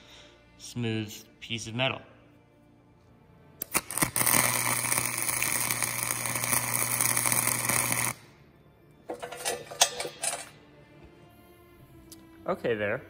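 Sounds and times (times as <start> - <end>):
welding arc crackling: 3.6 - 8.2.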